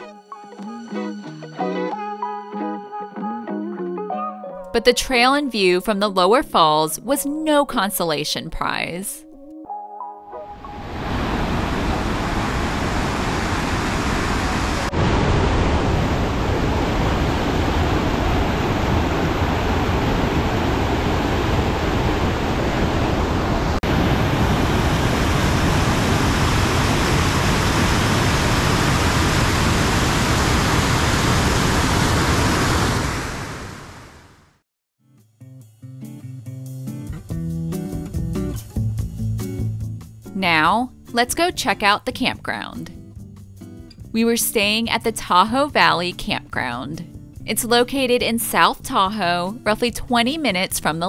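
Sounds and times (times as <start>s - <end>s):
waterfall rushing: 10.7s - 34.4s.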